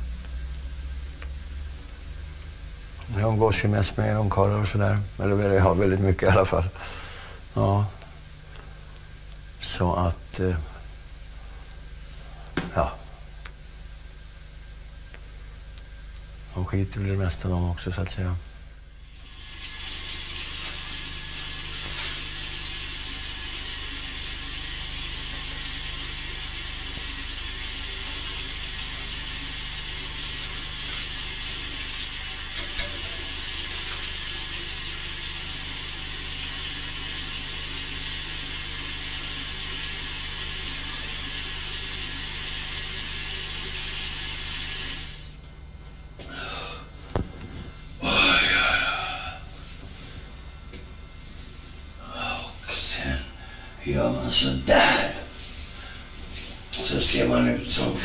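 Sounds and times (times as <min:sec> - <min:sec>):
tap water running into sink: 0:19.1 - 0:45.3.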